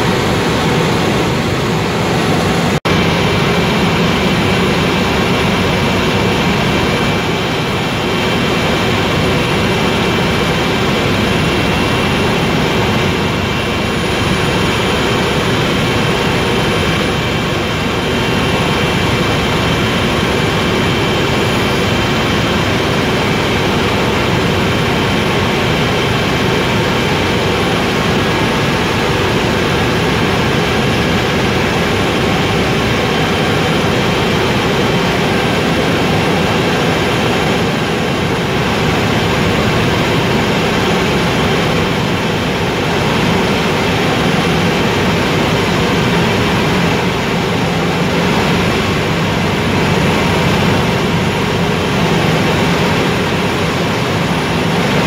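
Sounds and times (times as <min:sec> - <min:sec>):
helicopter engine and rotor drone: 0:00.0 - 0:55.0
steady high whine: 0:00.0 - 0:55.0.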